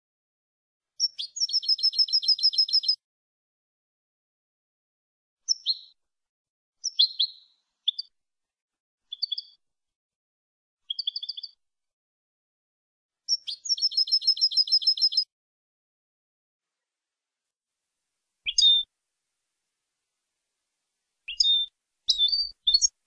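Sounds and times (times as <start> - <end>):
goldfinch chirps and twitters: 1.0 - 3.0, 5.5 - 6.0, 6.8 - 8.1, 9.1 - 9.6, 10.9 - 11.6, 13.3 - 15.3, 18.5 - 18.9, 21.3 - 23.0
rapid bird trill: 21.3 - 23.0.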